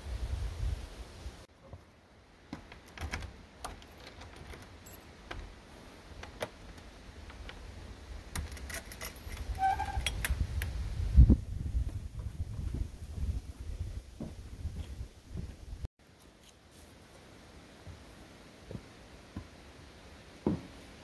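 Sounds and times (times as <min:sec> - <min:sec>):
keys and door latch rattling: 0:02.6 - 0:05.6, 0:08.3 - 0:10.3
door squeaking open: 0:08.8 - 0:10.2
heavy thump: 0:20.4 - 0:20.8.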